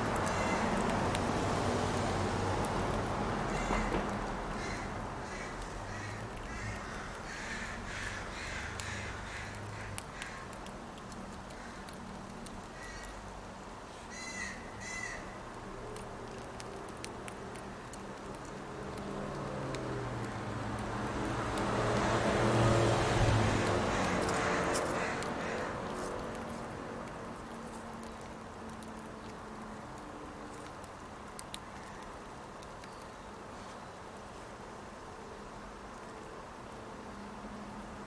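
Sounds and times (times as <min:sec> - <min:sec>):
crow cawing: 0:00.3 - 0:00.7, 0:03.5 - 0:03.9, 0:04.6 - 0:10.5, 0:12.8 - 0:13.2, 0:14.1 - 0:15.4, 0:23.9 - 0:25.8.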